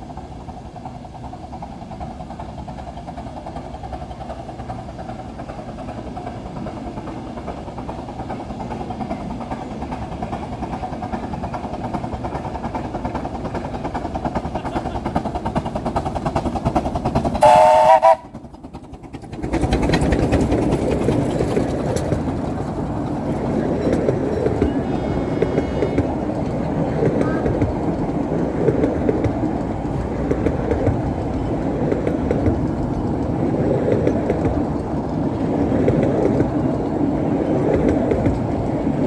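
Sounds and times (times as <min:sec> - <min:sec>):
coaches rumbling and clattering: 0:00.0 - 0:17.4, 0:18.2 - 0:39.0
steam locomotive exhaust beats: 0:00.0 - 0:39.0
steam whistle: 0:17.4 - 0:18.3.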